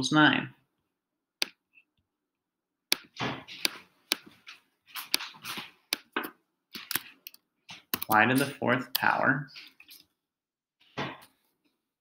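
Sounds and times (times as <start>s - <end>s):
computer mouse clicks: 5.9s - 9.2s
keyboard keystrokes: 6.8s - 9.1s.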